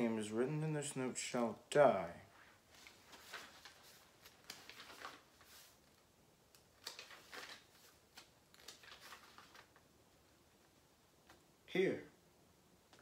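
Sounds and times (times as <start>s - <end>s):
paper pages rustling: 2.4s - 9.9s.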